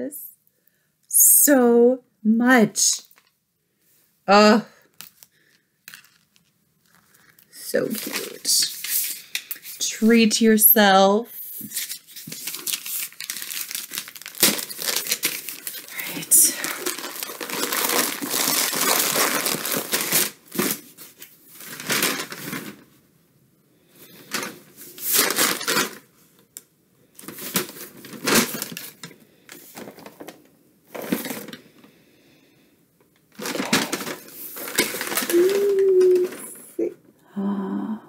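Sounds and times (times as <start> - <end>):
packaging rustling and crinkling: 4.8 - 9.9, 11.6 - 23.0, 24.0 - 26.5, 27.2 - 31.9, 33.3 - 36.6.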